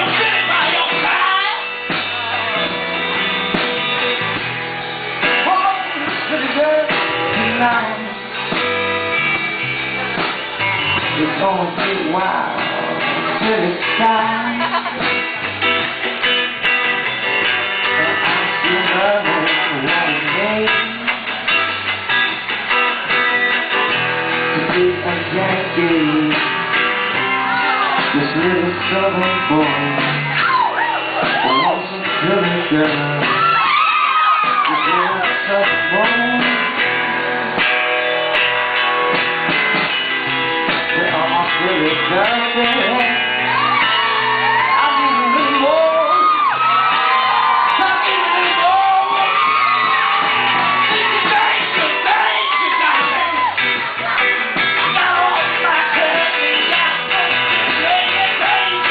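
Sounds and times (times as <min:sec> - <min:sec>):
drum kit: 0:00.0 - 0:58.9
guitar playing: 0:00.0 - 0:58.9
man singing into a microphone: 0:05.4 - 0:08.3, 0:11.0 - 0:15.1, 0:17.9 - 0:21.3, 0:24.5 - 0:26.9, 0:27.7 - 0:36.9, 0:40.8 - 0:58.9.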